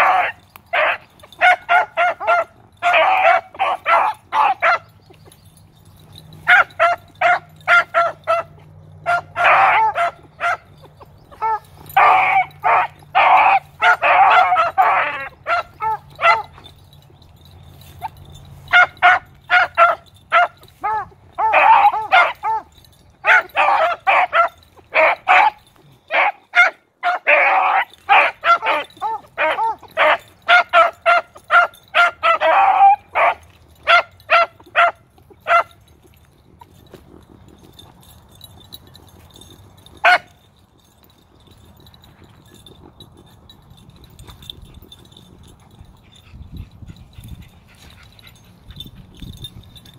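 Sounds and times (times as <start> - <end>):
puppies baying: 0.0 - 49.9.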